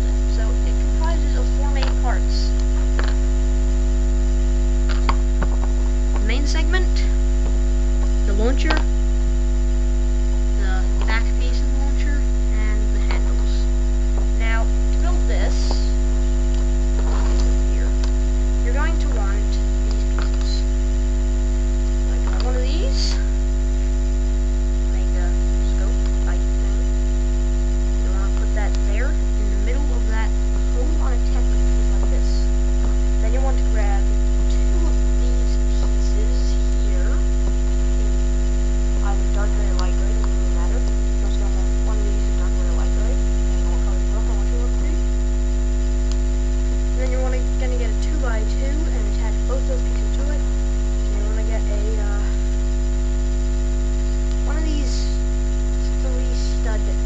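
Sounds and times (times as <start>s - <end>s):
electrical mains hum: 0.0s - 57.0s.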